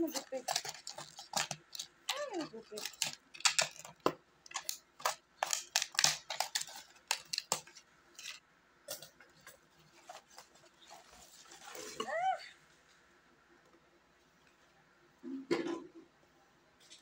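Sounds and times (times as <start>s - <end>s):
scissors cutting plastic bottle: 0.0s - 8.3s.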